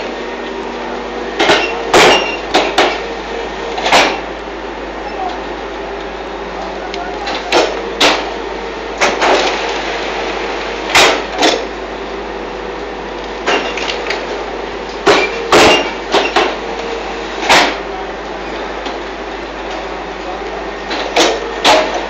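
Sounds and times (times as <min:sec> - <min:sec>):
machine hum: 0:00.0 - 0:22.0
loud metal clanks and bangs: 0:01.4 - 0:03.1, 0:03.8 - 0:04.3, 0:07.4 - 0:08.4, 0:10.9 - 0:11.7, 0:15.0 - 0:16.6, 0:20.9 - 0:22.0.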